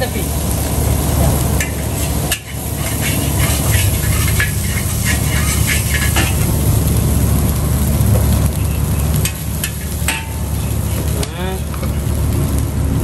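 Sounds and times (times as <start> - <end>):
low rumble: 0.0 - 13.0
rice sizzling in a wok: 0.0 - 13.0
metal spatula scraping pan: 1.6 - 6.5.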